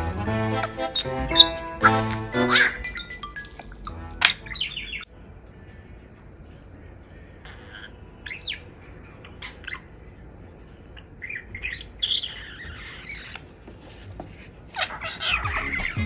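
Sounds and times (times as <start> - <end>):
budgerigar chirping: 0.4 - 5.1, 7.4 - 10.0, 11.0 - 13.5, 14.7 - 16.0.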